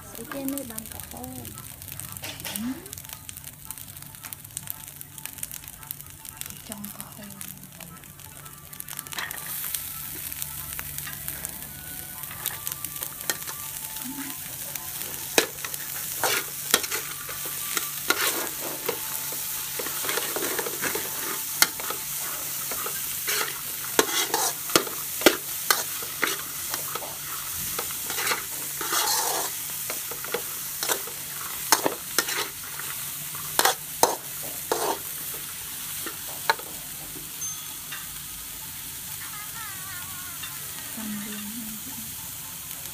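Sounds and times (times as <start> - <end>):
rice sizzling in a wok: 0.0 - 42.9
metal spatula scraping wok: 15.1 - 38.2.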